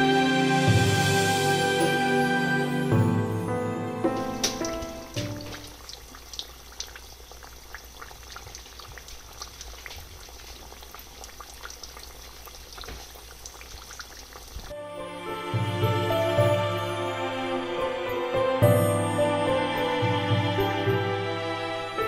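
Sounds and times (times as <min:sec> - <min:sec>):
deep-frying sizzle with pops: 0:04.2 - 0:14.7.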